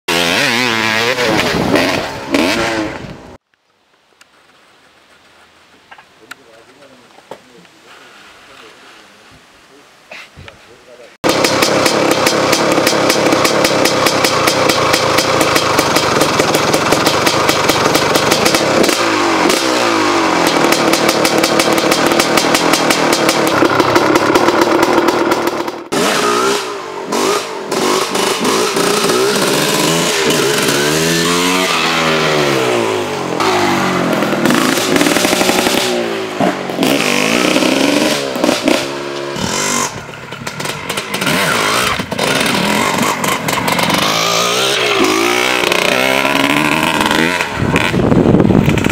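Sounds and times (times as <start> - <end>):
two-stroke motorcycle engine revving: 0.1 - 3.4, 11.2 - 48.9
motorcycle riding past: 11.4 - 48.9.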